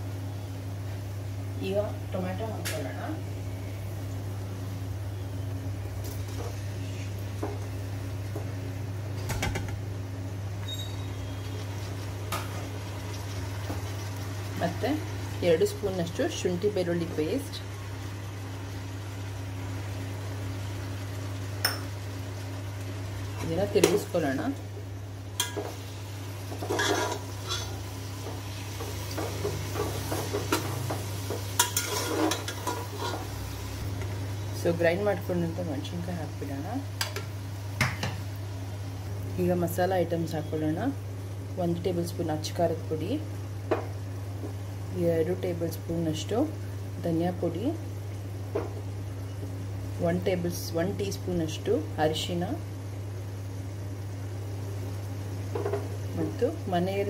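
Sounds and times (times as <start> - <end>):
food sizzling in oil: 10.3 - 57.0
metal spoon scraping a pot: 26.6 - 27.8, 31.6 - 33.3.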